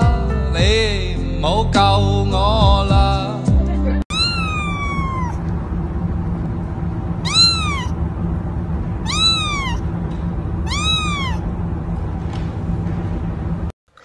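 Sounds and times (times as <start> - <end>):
kitten meowing: 4.1 - 5.4, 7.2 - 8.0, 9.0 - 9.8, 10.7 - 11.4.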